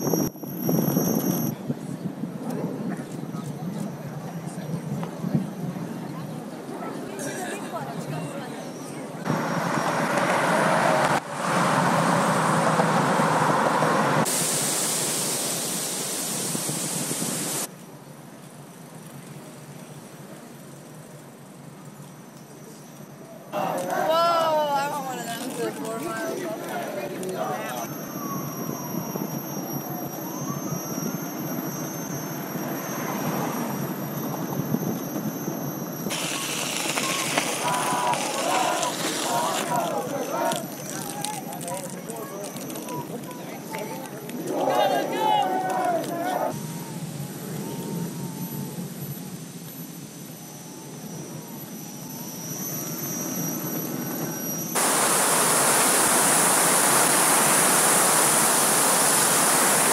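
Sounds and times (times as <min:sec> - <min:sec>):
thin high whine: 0:00.0 - 0:01.6, 0:22.1 - 0:40.9, 0:42.2 - 0:59.9
wind rushing on microphone: 0:00.0 - 0:06.2, 0:15.4 - 0:17.7
tyre rumble on street: 0:36.1 - 0:44.3.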